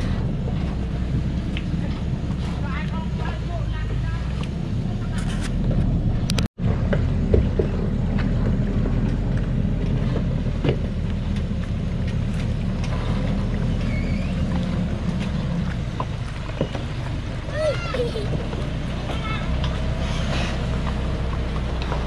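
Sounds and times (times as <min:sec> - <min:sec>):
truck diesel engine running: 0:00.0 - 0:22.0.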